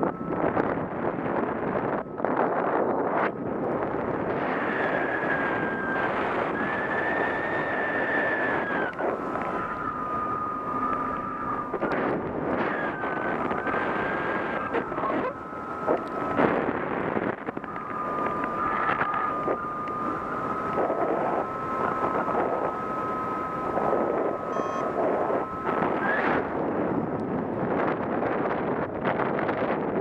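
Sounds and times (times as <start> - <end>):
wind buffeting microphone: 0.0 - 30.0
steady high tone: 5.4 - 27.6.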